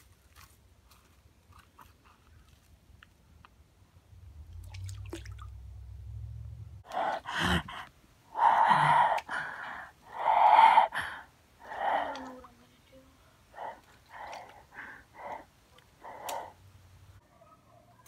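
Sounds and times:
faint low rumble: 2.1s - 11.2s
heavy breathing: 6.8s - 12.3s, 13.4s - 16.7s
soft snaps: 15.2s - 16.6s.

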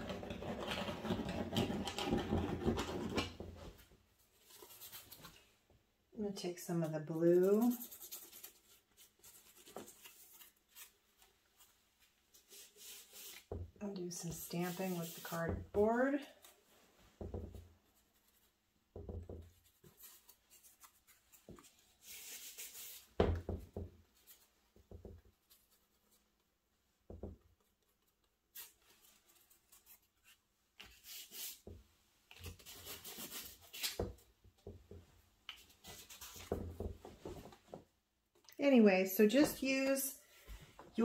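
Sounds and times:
cardboard scraping on paper: 14.3s - 16.5s.

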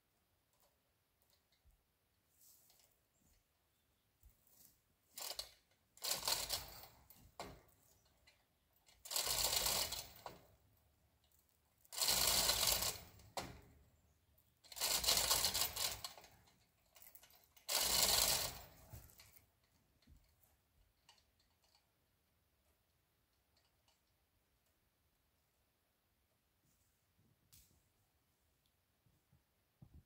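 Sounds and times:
chain rattling and clicking: 5.2s - 10.6s, 11.2s - 13.5s, 14.6s - 22.0s.

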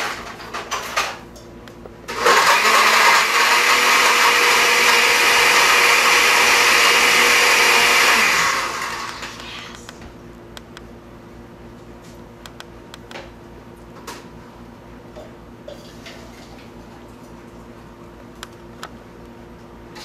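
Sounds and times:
blender running: 2.1s - 9.9s.

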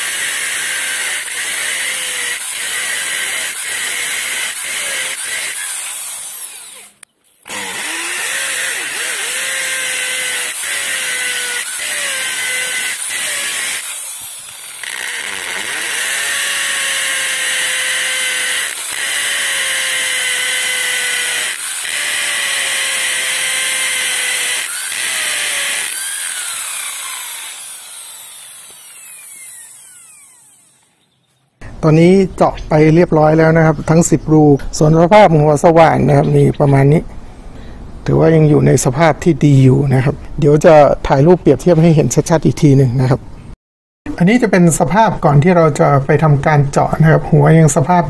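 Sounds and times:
electric drill boring into concrete: 0.0s - 30.9s.

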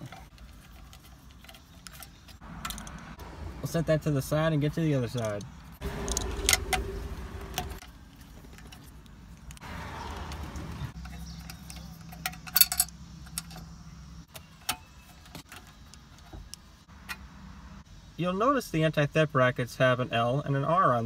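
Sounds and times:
metal screws and screwdriver clinking: 0.0s - 3.2s, 5.0s - 9.6s, 10.2s - 13.7s.

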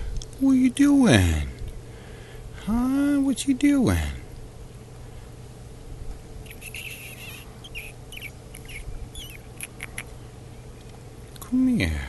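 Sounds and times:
faint steady hum: 0.0s - 12.0s
grouse squeaky chirps: 6.4s - 10.3s.

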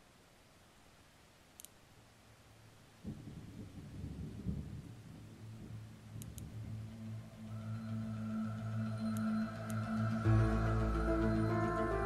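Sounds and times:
thunder rumbling and crackling: 3.0s - 8.1s.

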